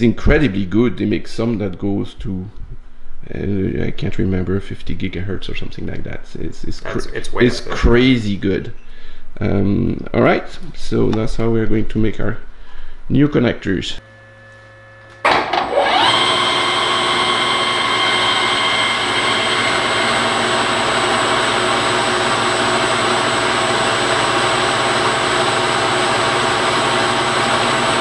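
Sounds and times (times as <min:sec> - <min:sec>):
lathe motor whining: 0:14.0 - 0:28.0.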